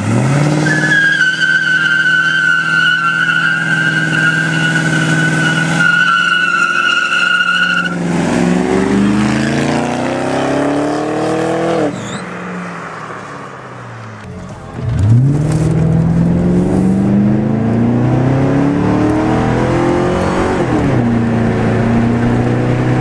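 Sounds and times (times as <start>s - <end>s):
car engine revving: 0.0s - 23.0s
tyres squealing: 0.6s - 8.0s.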